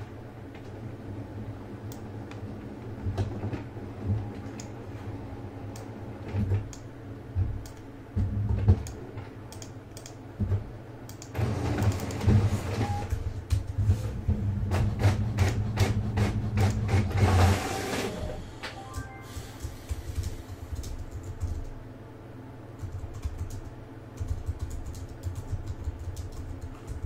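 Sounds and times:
low steady hum: 0:00.0 - 0:27.0
keyboard typing: 0:08.6 - 0:10.2, 0:11.1 - 0:13.8, 0:18.7 - 0:21.8, 0:22.8 - 0:27.0.

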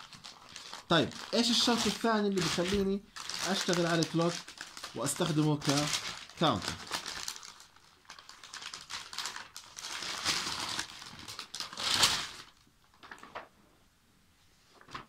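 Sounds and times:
paper rustling: 0:00.0 - 0:13.5, 0:14.7 - 0:15.0.

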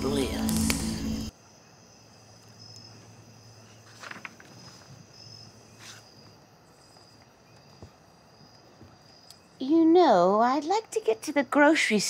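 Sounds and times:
crickets chirping: 0:00.0 - 0:12.0
soft rustles: 0:03.6 - 0:06.4.

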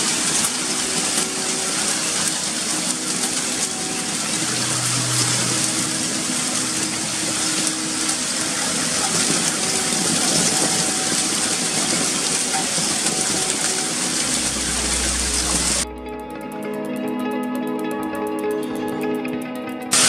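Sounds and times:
heavy hail and rain: 0:00.0 - 0:15.8
music: 0:00.0 - 0:20.0.

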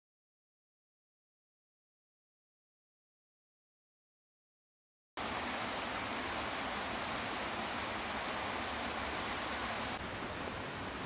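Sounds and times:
stream water flowing: 0:05.2 - 0:11.0.

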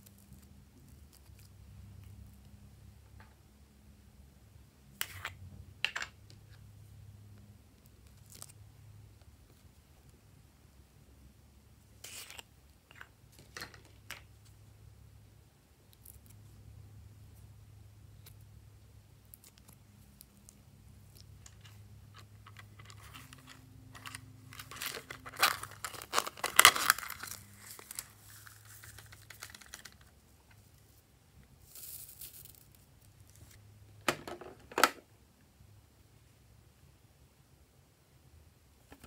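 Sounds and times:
crinkling handling sounds: 0:19.3 - 0:33.6.

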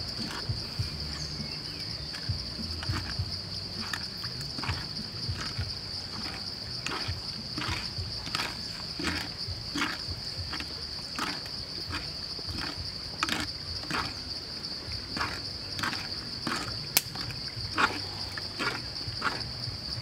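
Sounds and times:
insects droning: 0:00.0 - 0:20.0
sharp click: 0:16.9 - 0:17.3.

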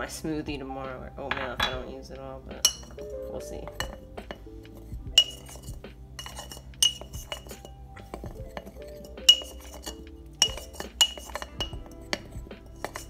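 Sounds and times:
spoon clinking against glass: 0:02.6 - 0:04.5, 0:05.1 - 0:13.0
spoon stirring powder in a jar: 0:02.6 - 0:13.0.

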